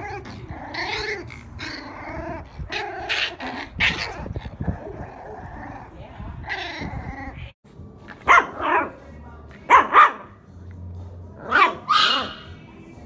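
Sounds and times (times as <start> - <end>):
puppy giving squeaky barks: 8.2 - 9.0, 9.7 - 10.4, 11.4 - 12.6.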